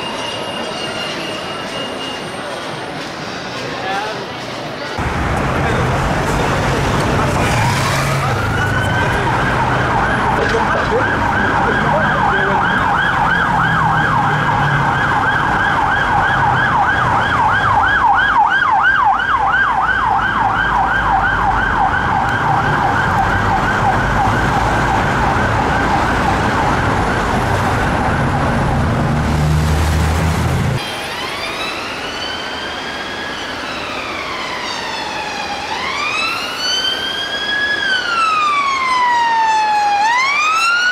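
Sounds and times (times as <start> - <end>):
traffic rumbling: 2.4 - 40.9
police siren slow wail: 7.0 - 40.9
police siren fast yelp: 7.6 - 27.0, 31.0 - 40.9.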